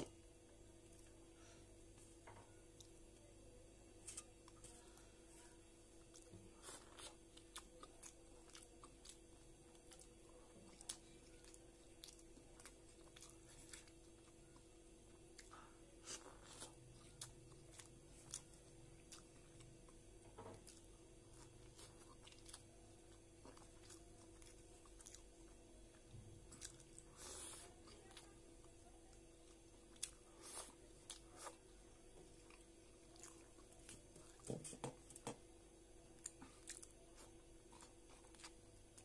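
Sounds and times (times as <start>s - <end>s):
faint steady hum: 0.0s - 39.0s
chewing with mouth sounds: 4.0s - 34.8s, 36.1s - 39.0s.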